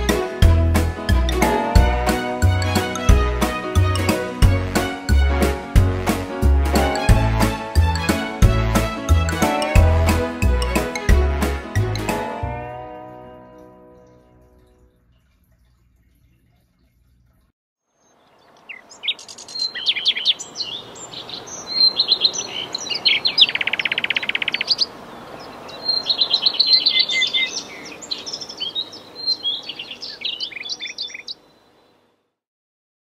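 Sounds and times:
songbird chirping and trilling: 18.0s - 32.0s.

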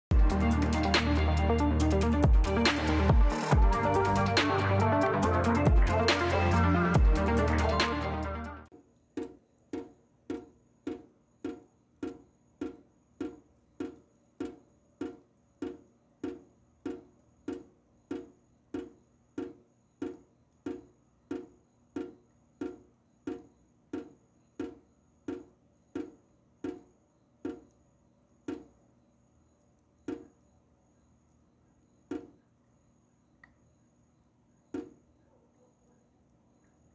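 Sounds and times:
water dripping into sink: 9.1s - 27.8s, 28.4s - 28.8s.

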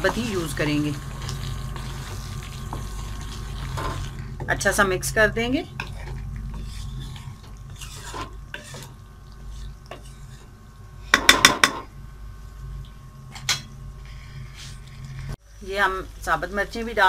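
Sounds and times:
spoon stirring thick gravy: 5.8s - 10.5s
spoon knocking against pan: 11.1s - 11.9s.

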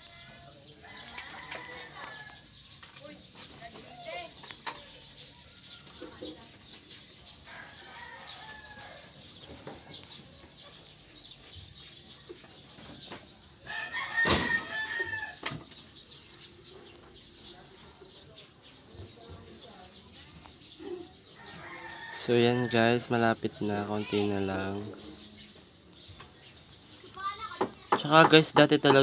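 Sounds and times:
rooster crowing: 0.2s - 2.4s, 7.5s - 9.2s, 13.6s - 15.4s, 21.4s - 22.9s.

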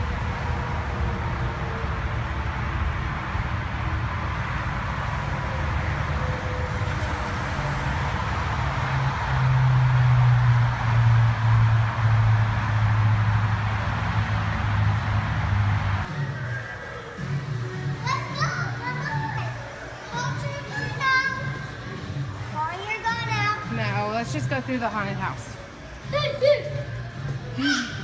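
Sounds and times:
motor vehicle rumbling: 0.0s - 16.6s.

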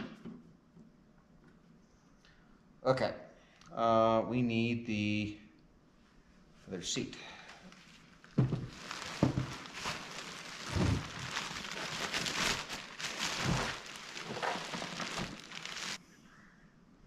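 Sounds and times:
plastic bag crinkling and rustling: 7.6s - 16.0s.

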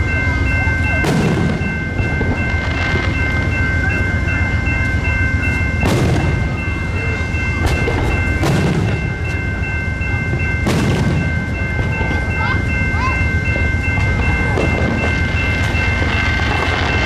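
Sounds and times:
crossing signal bells ringing: 0.0s - 17.0s
train engine rumbling: 0.0s - 17.0s
fireworks booming: 0.9s - 3.3s, 5.8s - 9.4s, 10.6s - 12.2s, 14.0s - 17.0s.

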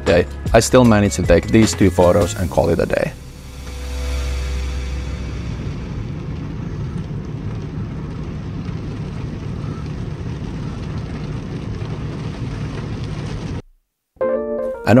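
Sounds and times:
low hum: 2.5s - 13.7s
heavy rain on car roof: 5.7s - 13.7s.

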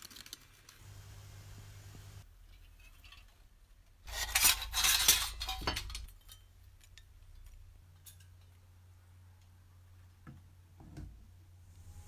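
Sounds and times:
sheet metal parts clattering: 2.5s - 8.6s.

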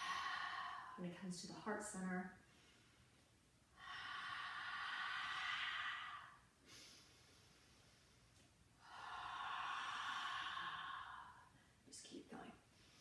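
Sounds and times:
woman exhaling heavily: 0.0s - 1.0s, 8.8s - 11.6s.

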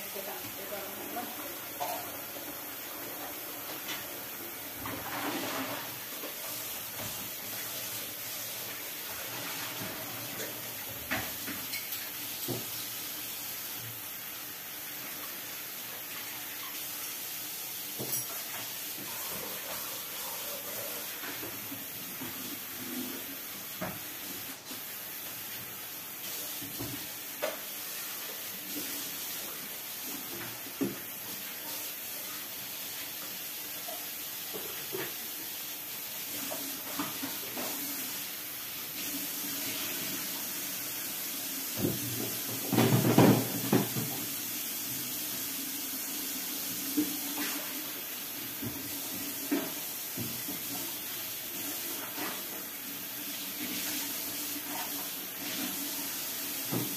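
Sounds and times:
tap running into a sink: 9.7s - 12.8s, 23.7s - 24.5s, 26.5s - 27.7s, 30.1s - 31.1s, 41.7s - 44.4s, 56.6s - 56.9s
dishes clinking: 11.6s - 12.2s, 18.0s - 18.6s.

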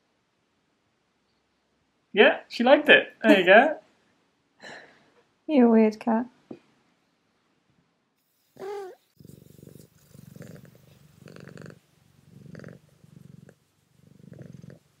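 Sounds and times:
cat purring: 8.2s - 15.0s
cat meowing: 8.6s - 9.0s.

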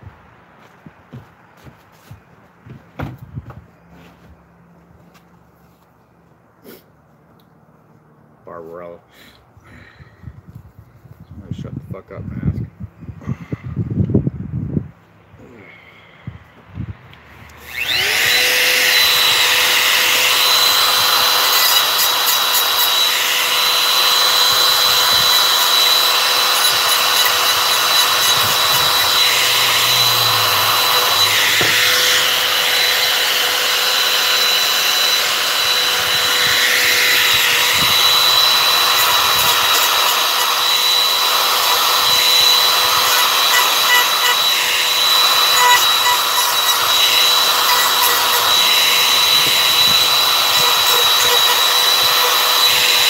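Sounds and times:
router bit grinding wood: 17.4s - 53.0s
router motor whine: 17.4s - 53.0s.

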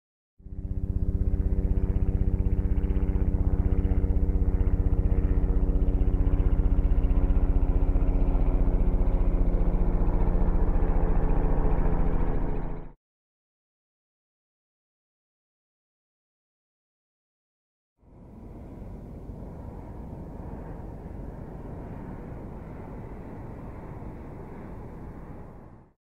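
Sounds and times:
helicopter rotor beating: 0.4s - 13.0s, 18.1s - 25.9s.

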